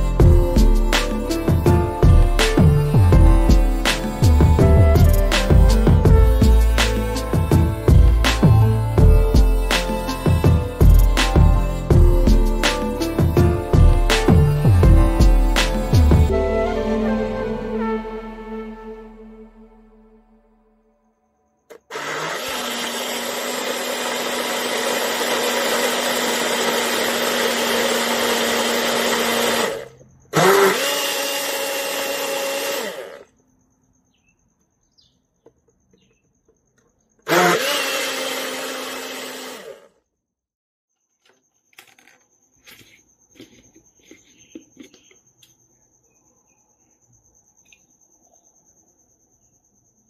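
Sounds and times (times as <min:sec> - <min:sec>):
blender motor running: 0:21.7 - 0:33.3, 0:37.2 - 0:39.9.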